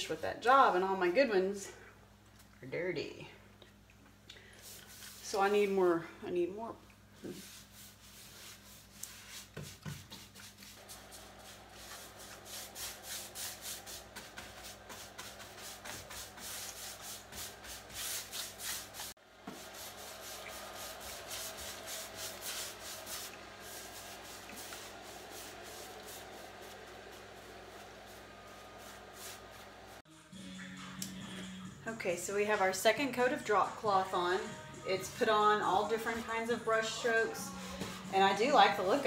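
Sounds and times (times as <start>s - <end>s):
paintbrush scrubbing on wood: 7.2s - 30.0s.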